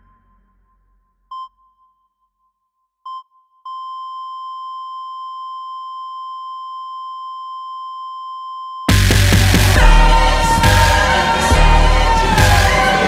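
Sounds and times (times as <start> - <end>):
short electronic beep: 3.1 - 9.0.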